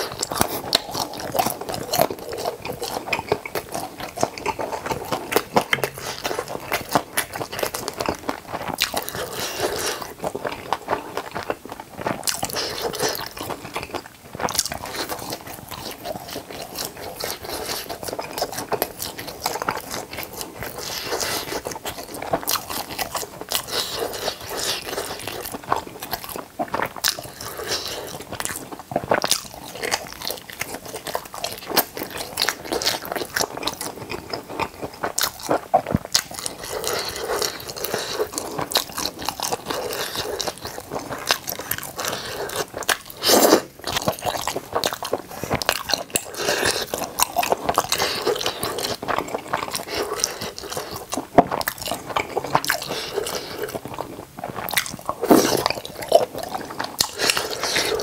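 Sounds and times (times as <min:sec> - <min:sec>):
crunchy chewing: 0:00.0 - 0:58.0.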